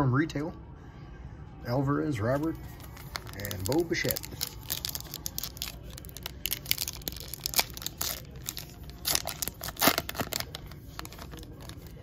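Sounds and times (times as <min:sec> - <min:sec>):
wrapper tearing and crinkling: 0:02.7 - 0:12.0.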